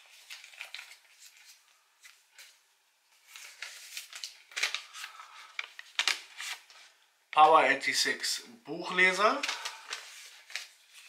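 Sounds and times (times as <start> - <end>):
paper crinkling and rustling: 0.0 - 7.0, 9.2 - 11.0.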